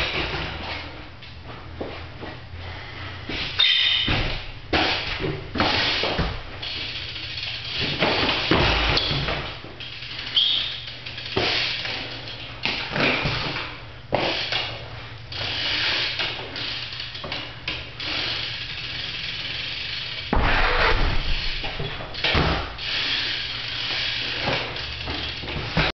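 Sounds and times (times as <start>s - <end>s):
bike landing knocks on concrete: 4.0s - 6.5s, 7.8s - 9.6s, 12.6s - 14.7s, 20.3s - 22.8s.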